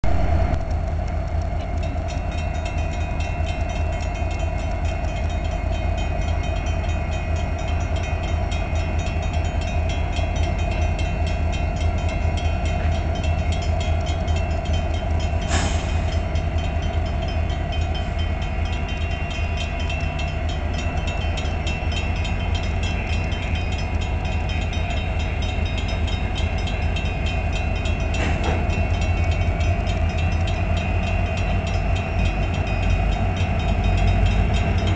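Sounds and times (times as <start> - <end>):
deep diesel engine rumble: 0.0 - 34.9.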